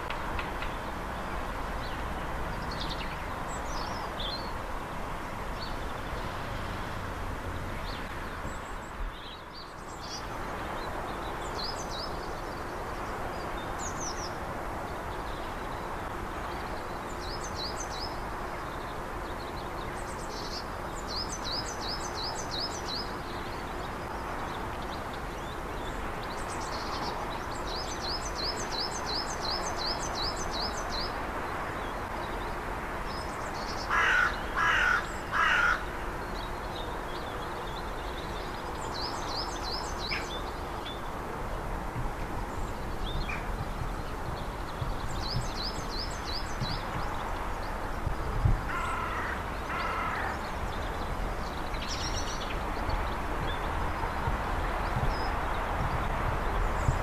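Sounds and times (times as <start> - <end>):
crow cawing: 33.9 - 35.8, 48.7 - 50.3.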